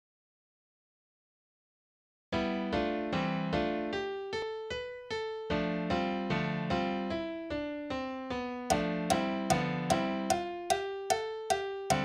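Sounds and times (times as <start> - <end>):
electric piano chords: 8.5 - 12.0.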